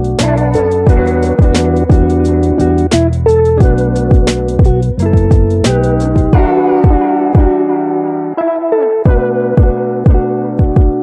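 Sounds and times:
hi-hat ticks: 0:00.0 - 0:06.4
deep kick drums: 0:00.0 - 0:07.6, 0:09.1 - 0:11.0
held synth notes: 0:00.0 - 0:10.5.

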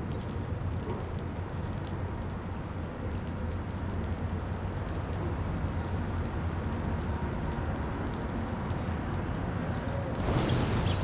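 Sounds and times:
bird wingbeats: 0:10.2 - 0:11.0.

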